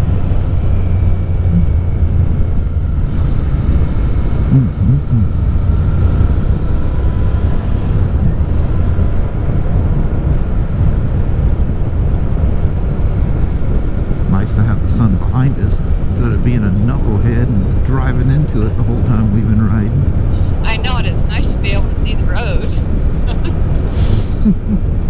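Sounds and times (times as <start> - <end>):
wind rush on microphone: 0.0 - 25.0.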